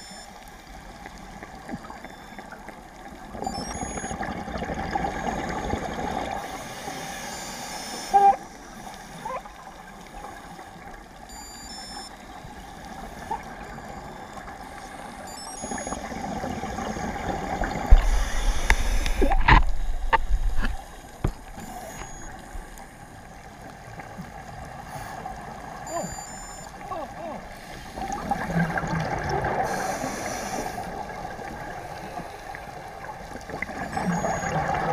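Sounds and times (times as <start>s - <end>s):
steady underwater hiss: 4.9s - 11.2s, 11.8s - 34.9s
regulator inhale hiss: 6.4s - 9.2s, 17.9s - 19.4s, 24.9s - 25.3s, 27.5s - 28.1s, 29.6s - 31.0s.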